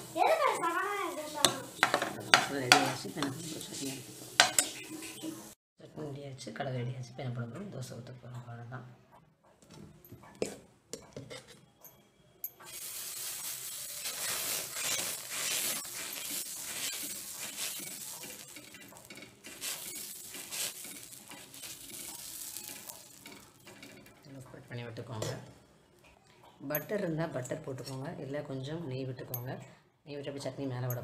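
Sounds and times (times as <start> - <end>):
batter sizzling on a hot griddle: 0.0 - 5.6, 12.6 - 24.2.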